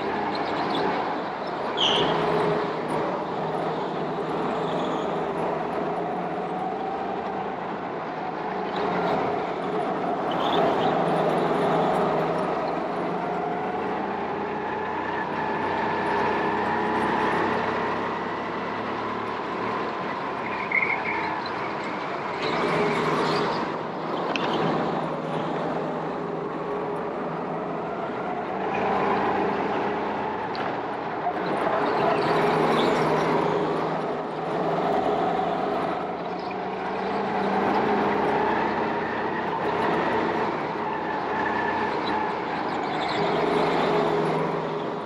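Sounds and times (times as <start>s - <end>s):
go-kart engines running: 0.0s - 45.0s
brief high squeak: 1.8s - 2.1s.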